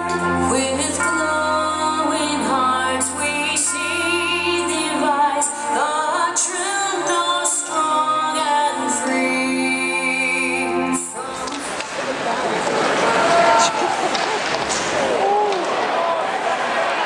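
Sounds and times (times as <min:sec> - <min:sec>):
woman singing an anthem: 0:00.0 - 0:11.7
sustained instrumental backing: 0:00.0 - 0:11.9.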